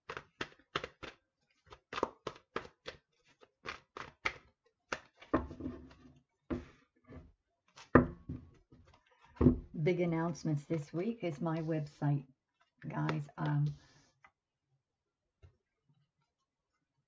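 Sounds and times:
cards being shuffled: 0:00.0 - 0:05.3.

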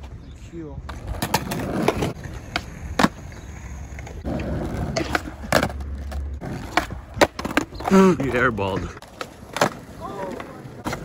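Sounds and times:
skateboard wheels rolling on concrete: 0:00.0 - 0:11.0
skateboard clacking on ground: 0:04.0 - 0:11.0.

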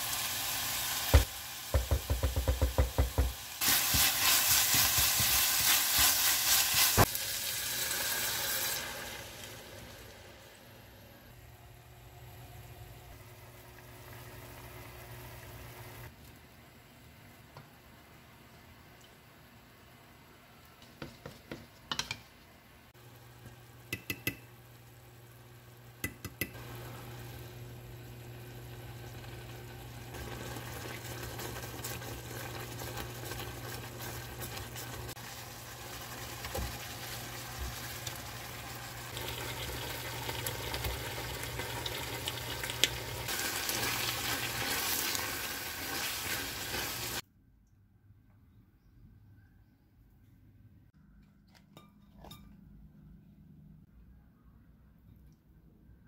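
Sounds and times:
sauce simmering and bubbling: 0:26.5 - 0:47.2.

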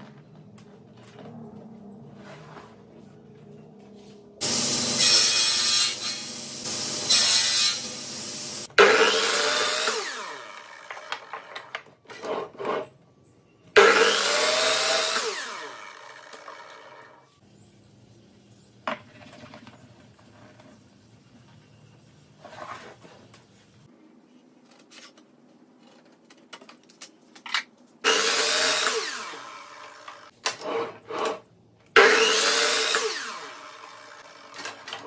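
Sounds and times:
saw blade whine winding down: 0:04.4 - 0:11.6, 0:13.8 - 0:17.3, 0:28.1 - 0:30.3, 0:32.0 - 0:34.9
miter saw cutting wood: 0:04.4 - 0:11.7, 0:13.8 - 0:17.3, 0:28.0 - 0:30.9, 0:32.0 - 0:35.0.

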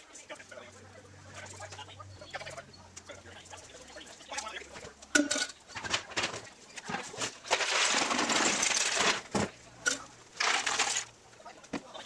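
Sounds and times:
wood chunks rattling in bucket: 0:05.8 - 0:09.6, 0:10.4 - 0:11.2.

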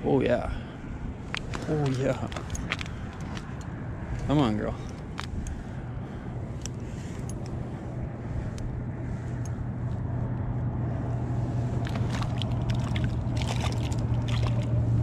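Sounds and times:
low hum: 0:00.0 - 0:15.0
fish splashing in water: 0:11.8 - 0:14.9.

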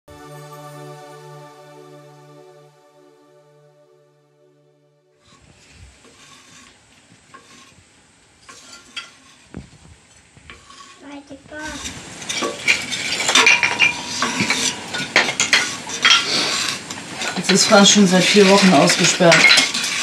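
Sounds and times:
wood and metal clattering: 0:11.6 - 0:20.0
metallic ring: 0:12.2 - 0:20.0.

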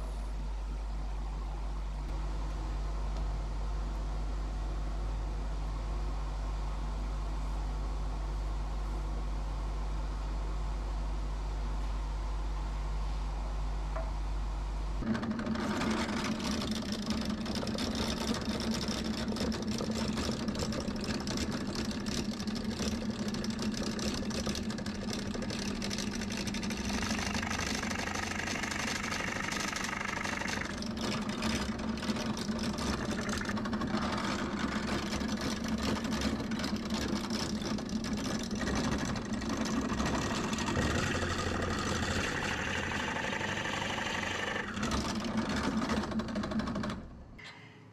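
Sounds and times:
drill press motor hum: 0:15.0 - 0:47.4
drill bit cutting wood: 0:26.9 - 0:31.8, 0:40.2 - 0:45.0.

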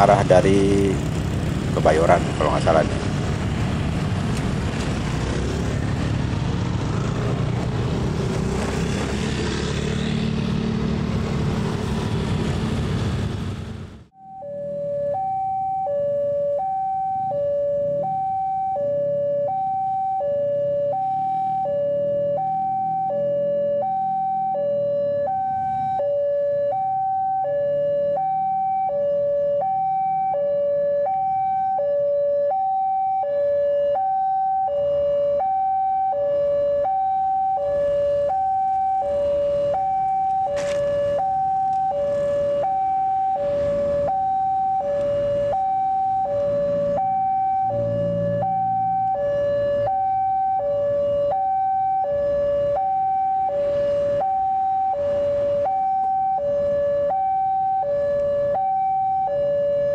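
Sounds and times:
level crossing two-tone alarm: 0:14.2 - 0:59.9.

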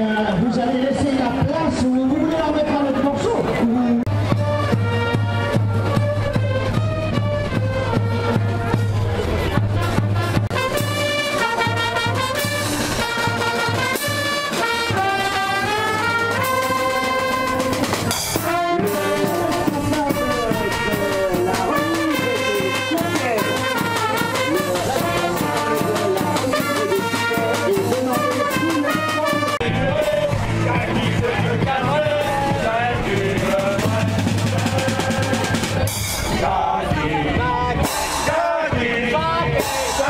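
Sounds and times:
trumpets: 0:04.0 - 0:36.8
cymbals: 0:04.1 - 0:29.6
bass drum: 0:04.1 - 0:40.0
snare drum: 0:09.9 - 0:29.6.

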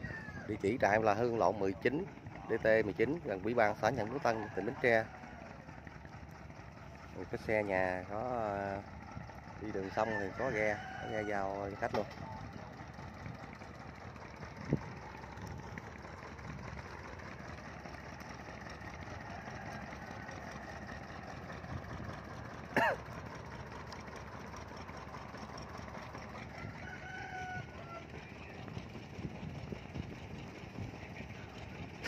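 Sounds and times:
low engine hum: 0:00.0 - 0:32.0.

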